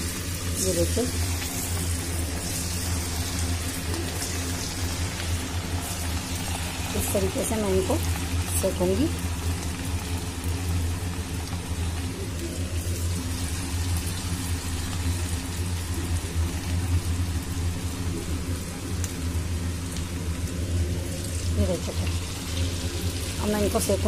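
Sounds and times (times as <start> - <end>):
dough deep-frying in oil: 0.0 - 24.0.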